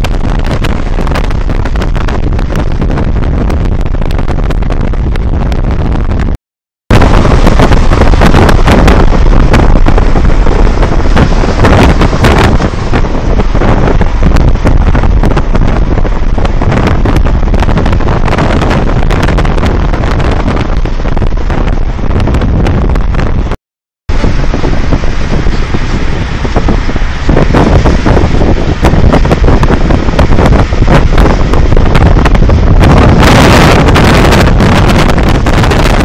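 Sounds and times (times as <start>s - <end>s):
car road noise: 0.0s - 6.3s, 6.9s - 36.0s
wind buffeting on microphone: 0.0s - 36.0s.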